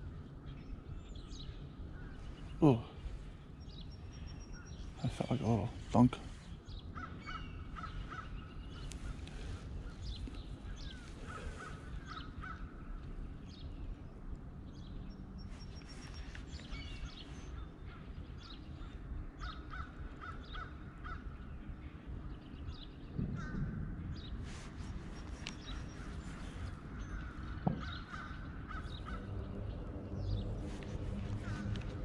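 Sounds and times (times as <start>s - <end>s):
low background rumble: 0.0s - 32.0s
birds repeated short calls: 2.0s - 13.0s, 23.2s - 29.5s, 30.2s - 32.0s.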